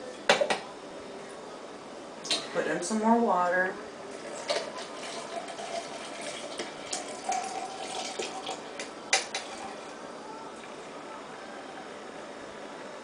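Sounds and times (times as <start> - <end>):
water pouring into a coffee press: 4.1 - 10.0.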